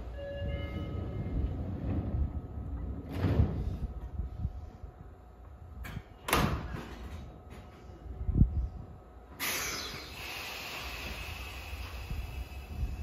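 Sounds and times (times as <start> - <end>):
stopped train humming: 0.0 - 5.9, 7.8 - 13.0
train doors thudding shut: 5.8 - 7.4.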